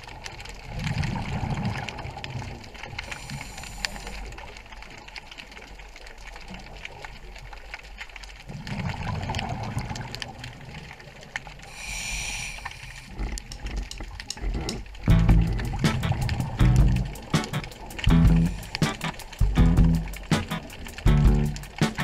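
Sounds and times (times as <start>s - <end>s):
exhaled bubbles rumbling underwater: 0.0s - 11.8s, 12.9s - 21.8s
hissing inhalation through regulator: 3.0s - 4.4s, 11.7s - 13.3s, 17.8s - 19.4s
small clicks: 12.6s - 19.5s.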